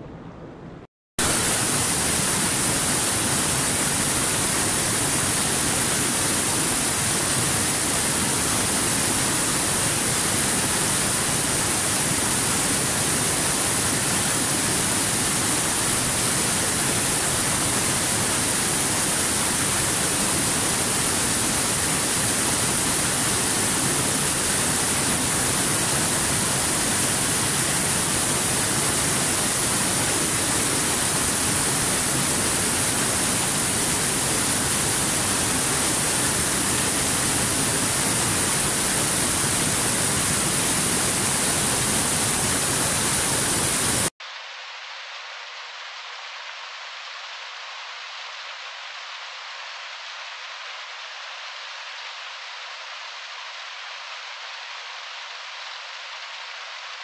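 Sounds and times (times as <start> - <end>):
small waterfall rushing: 1.2 - 57.0.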